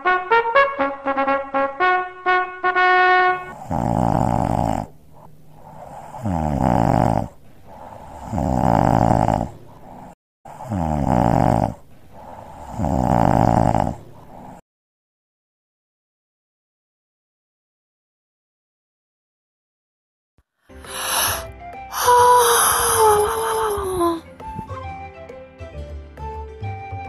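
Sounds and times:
short trumpet-like note: 0.0s - 3.6s
cartoon snoring: 3.5s - 14.6s, 20.8s - 24.2s.

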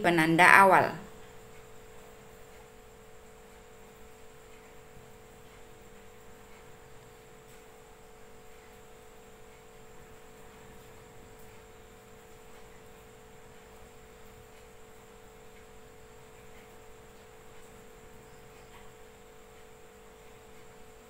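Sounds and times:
faint steady hum: 0.0s - 21.0s
low hiss: 0.0s - 21.0s.

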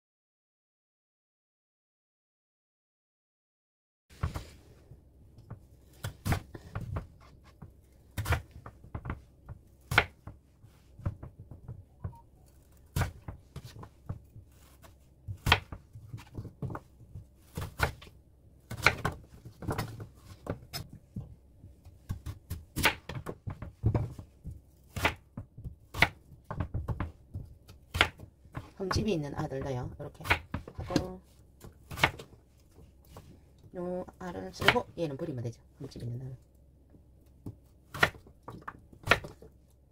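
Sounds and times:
knife chopping on wooden board: 5.5s - 10.4s, 12.9s - 18.1s, 18.7s - 21.3s, 22.0s - 33.3s, 34.6s - 34.9s, 37.4s - 39.5s.

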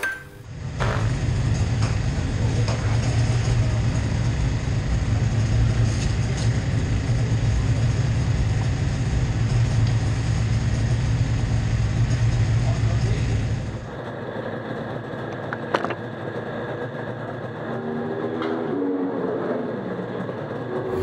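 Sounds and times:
low engine rumble: 0.0s - 15.4s, 20.6s - 21.0s.

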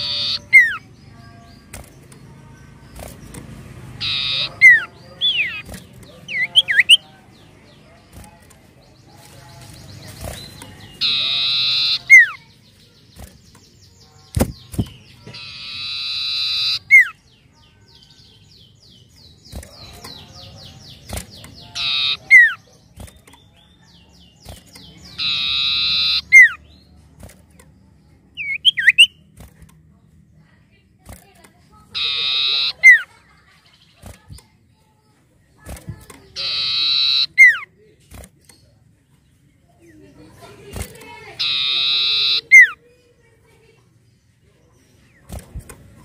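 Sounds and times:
bird singing harsh notes: 0.0s - 7.5s, 8.8s - 27.0s, 28.3s - 29.4s, 31.9s - 33.2s, 36.2s - 37.8s, 41.0s - 42.8s.

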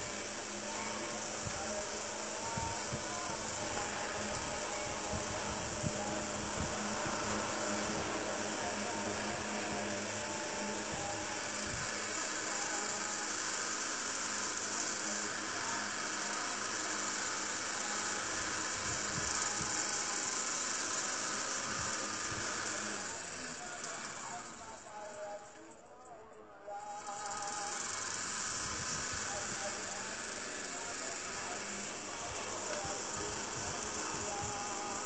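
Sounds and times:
electric fan whirring: 0.0s - 35.0s.

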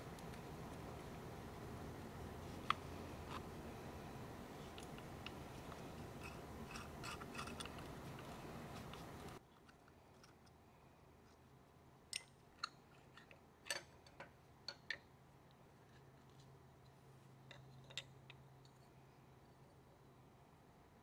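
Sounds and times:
steady shop hum: 0.0s - 9.4s.

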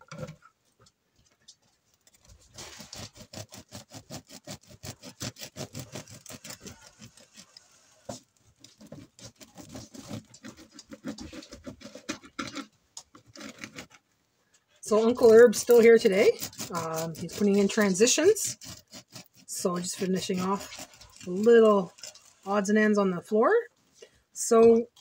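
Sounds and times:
bread knife sawing through loaf: 2.2s - 13.9s, 14.9s - 22.7s.

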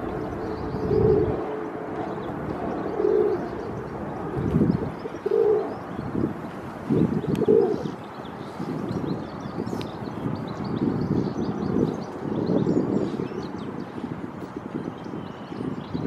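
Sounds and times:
pigeon cooing: 0.0s - 5.8s, 7.2s - 8.0s
small birds chirping: 0.0s - 16.0s
wind rumble on microphone: 0.0s - 16.0s.

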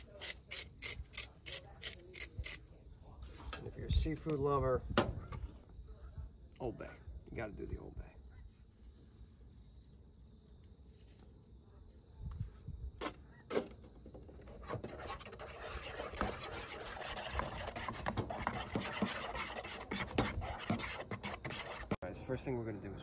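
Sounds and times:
fork whisking batter in bowl: 14.5s - 22.0s.

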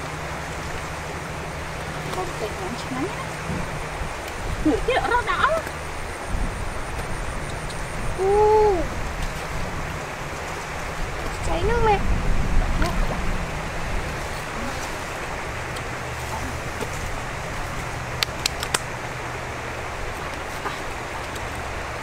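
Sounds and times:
stream running water: 0.0s - 22.0s
sharp clicks: 18.2s - 18.9s.

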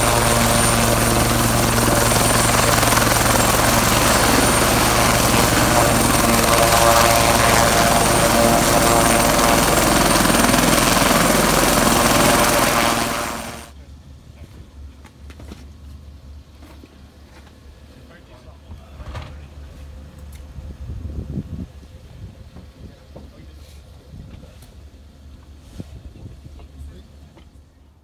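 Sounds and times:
helicopter rotor noise: 0.0s - 13.7s
high turbine whine: 0.0s - 13.7s.

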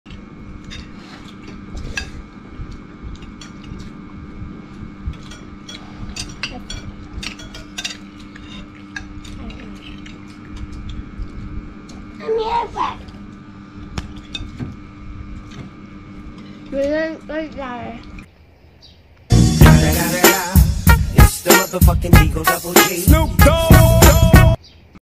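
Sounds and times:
steady low hum: 0.1s - 24.6s
spoons clinking on ceramic bowls: 6.2s - 9.4s.

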